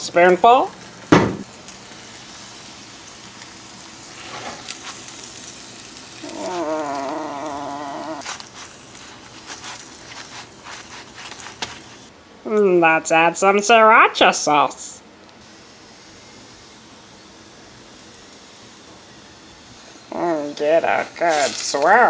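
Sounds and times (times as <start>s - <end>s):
tortilla sizzling in skillet: 0.2s - 12.1s, 15.4s - 20.1s, 21.1s - 22.0s
drawn-out wavering call: 6.2s - 8.2s
spoon scraping: 7.0s - 12.1s.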